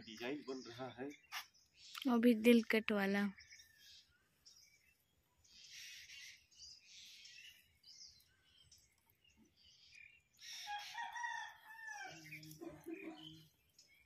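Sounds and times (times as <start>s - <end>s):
bird calling: 3.4s - 8.8s, 9.8s - 14.0s.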